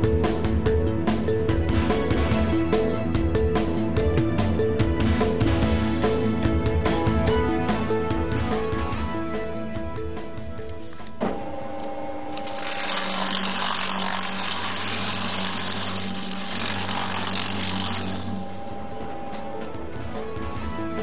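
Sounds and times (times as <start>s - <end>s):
paper shredder motor shredding: 11.3s - 19.2s.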